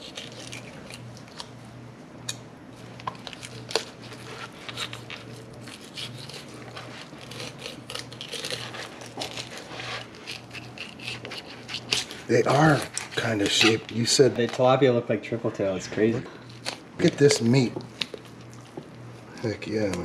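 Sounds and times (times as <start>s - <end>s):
knife scraping through fish scales: 3.8s - 13.9s.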